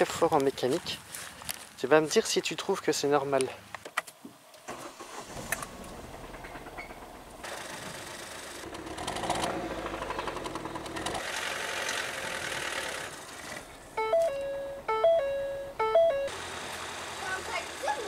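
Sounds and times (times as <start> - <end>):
car engine clattering: 5.0 - 14.0.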